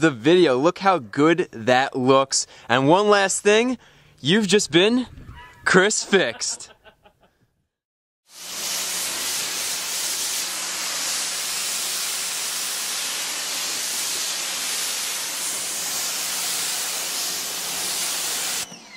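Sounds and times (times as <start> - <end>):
pressure washer spraying water: 8.3 - 18.7.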